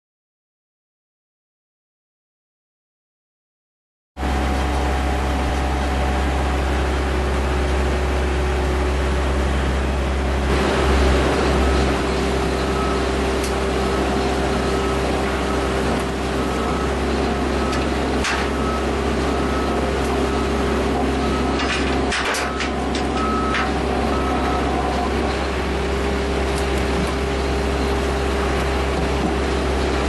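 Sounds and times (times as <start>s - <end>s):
crusher engine droning: 4.2s - 30.0s
short beeps: 11.4s - 13.1s.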